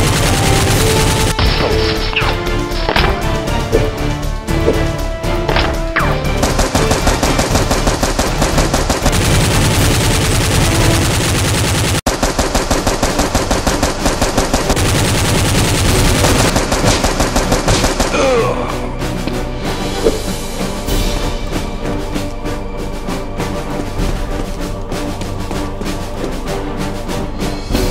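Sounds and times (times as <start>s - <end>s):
machine-gun fire: 0.0s - 1.4s, 6.3s - 18.2s.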